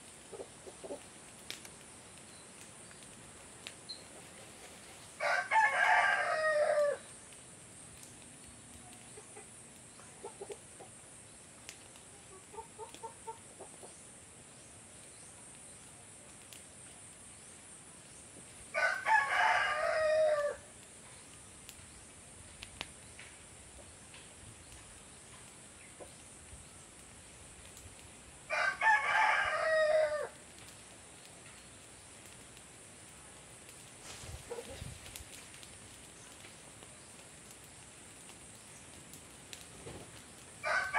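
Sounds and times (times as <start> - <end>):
rooster crowing: 5.2 - 7.1, 18.7 - 20.7, 28.5 - 30.4, 40.6 - 40.9
chicken clucking softly: 12.1 - 14.0.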